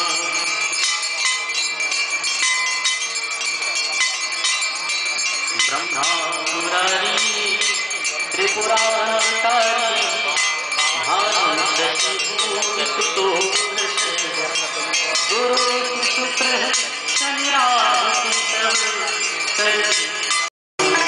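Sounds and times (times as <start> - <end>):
chanted devotional singing: 0.0 - 0.9, 5.5 - 21.0
bells ringing rapidly: 0.0 - 21.0.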